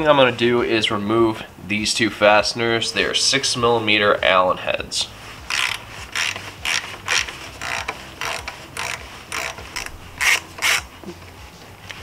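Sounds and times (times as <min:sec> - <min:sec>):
ratchet pawl clicking: 0:05.5 - 0:10.9.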